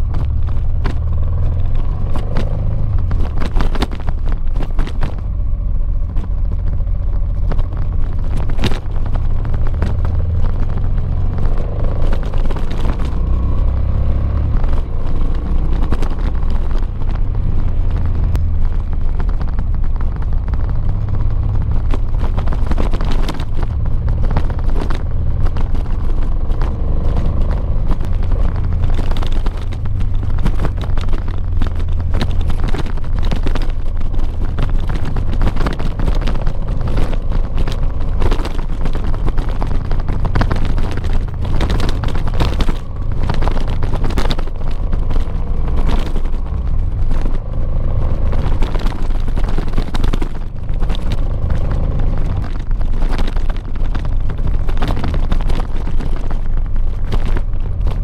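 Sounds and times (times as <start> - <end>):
gravel clicking under tyres: 0.0 - 58.0
motorcycle engine revving: 0.0 - 58.0.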